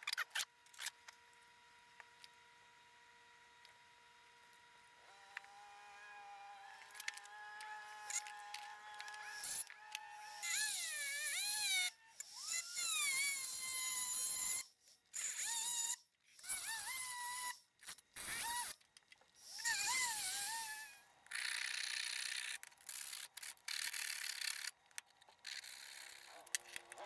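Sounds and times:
rotary tool grinding steel: 0:05.3 - 0:18.8, 0:19.4 - 0:27.0.

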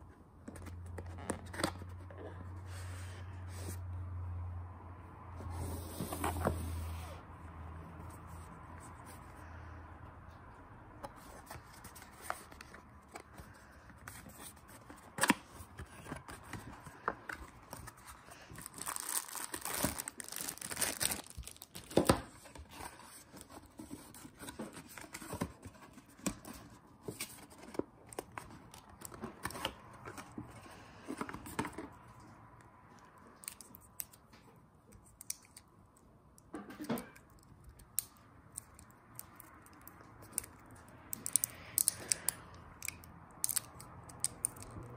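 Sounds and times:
packaging rustling and tearing: 0:11.3 - 0:26.4.

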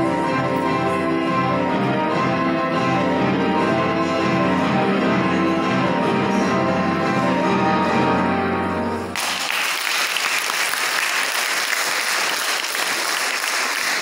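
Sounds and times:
audience applause: 0:09.2 - 0:14.0.

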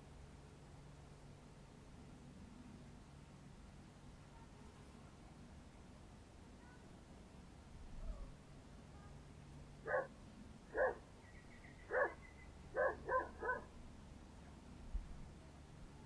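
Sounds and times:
dog barking: 0:09.9 - 0:10.1, 0:10.7 - 0:11.0, 0:11.9 - 0:12.2, 0:12.8 - 0:13.7.

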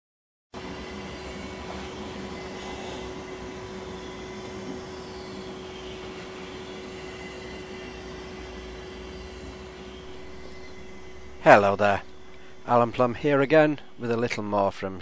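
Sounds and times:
electric motor whine: 0:00.6 - 0:14.4
rush of blown air: 0:07.3 - 0:14.2.

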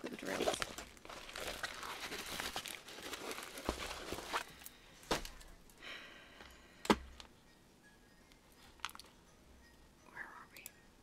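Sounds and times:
packaging rustling: 0:00.2 - 0:05.6.

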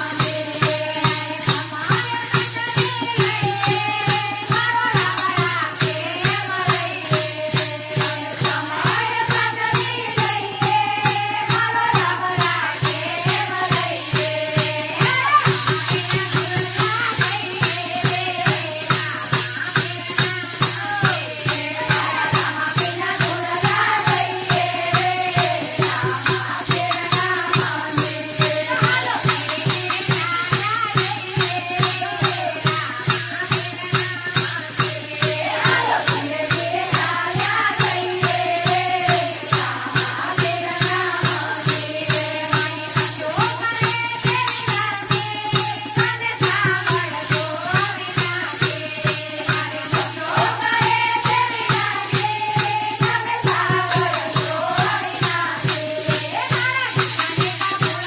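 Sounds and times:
women singing devotional song: 0:00.0 - 0:58.0
wooden clappers jingling: 0:20.3 - 0:39.0.

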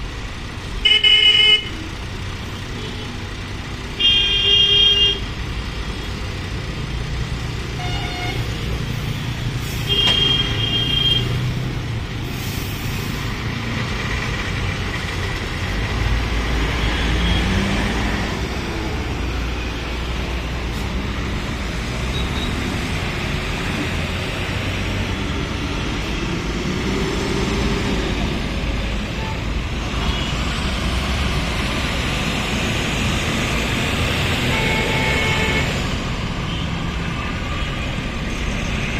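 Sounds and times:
heavy traffic engines: 0:00.0 - 0:38.9
vehicle horn toots: 0:09.9 - 0:11.3, 0:34.5 - 0:35.7.

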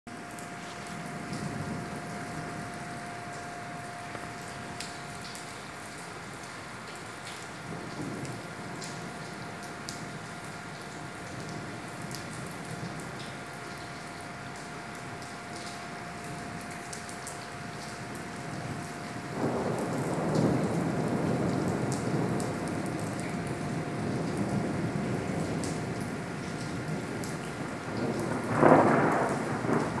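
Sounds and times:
steady rain falling: 0:00.1 - 0:30.0
thunder rumbling: 0:00.2 - 0:06.1, 0:18.0 - 0:30.0.

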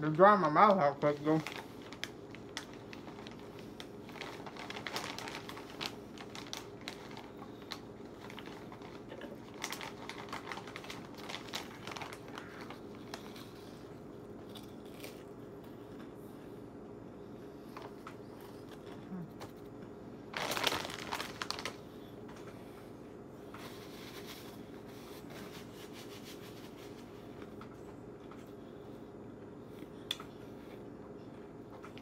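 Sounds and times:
hand rummaging in crinkly chip bag: 0:00.2 - 0:13.6, 0:20.3 - 0:21.9.

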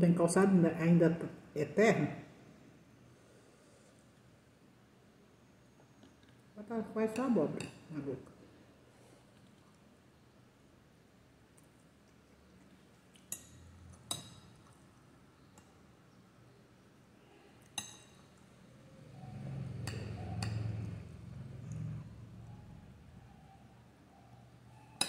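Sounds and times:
person chewing food: 0:11.5 - 0:14.9
metal spoon clinking on glass bowl: 0:13.3 - 0:14.6, 0:17.8 - 0:18.4, 0:19.8 - 0:20.8.

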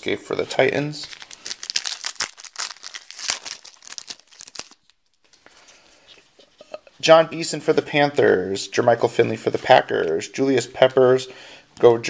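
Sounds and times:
faint rustles of cards: 0:00.3 - 0:07.0
foil wrapper crinkling and tearing: 0:01.0 - 0:05.4.

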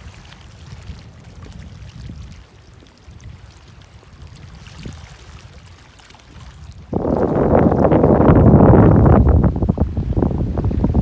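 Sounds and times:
water splashing: 0:00.0 - 0:08.6
wind buffeting microphone: 0:00.0 - 0:11.0.

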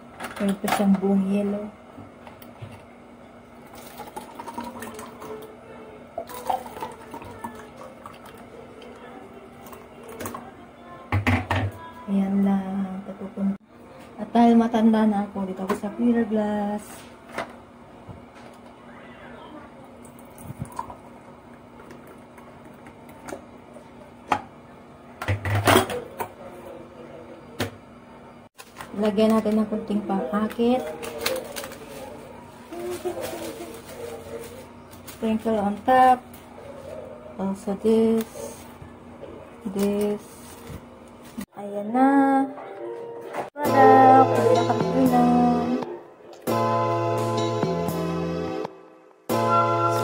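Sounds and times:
liquid pouring into cups: 0:03.6 - 0:05.6, 0:06.2 - 0:10.4, 0:19.9 - 0:23.4
kitchenware knocking on countertop: 0:11.1 - 0:11.8.

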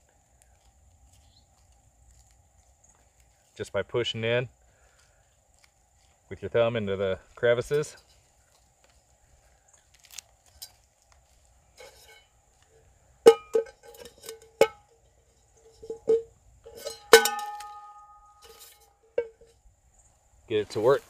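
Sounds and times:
metal camp pot clanking: 0:07.6 - 0:08.3, 0:10.5 - 0:10.8, 0:11.7 - 0:12.3, 0:13.2 - 0:19.6.

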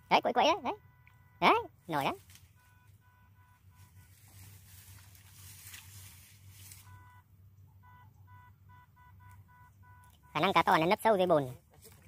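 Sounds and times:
rapid electronic beeping: 0:00.0 - 0:04.2
soft rustling hiss: 0:03.7 - 0:07.2.

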